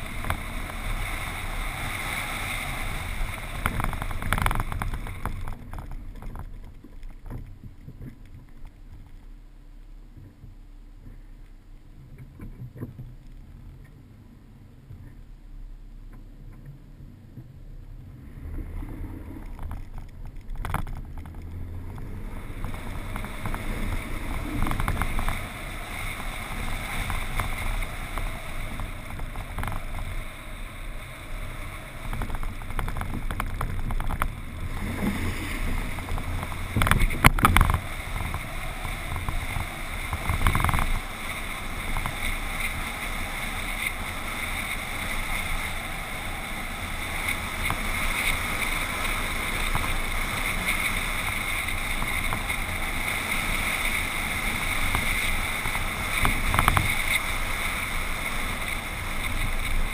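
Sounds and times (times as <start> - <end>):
truck driving on dirt track: 0.0 - 59.9
wind noise on microphone: 0.0 - 59.9
truck knocking over ruts: 2.8 - 9.0, 18.4 - 45.8.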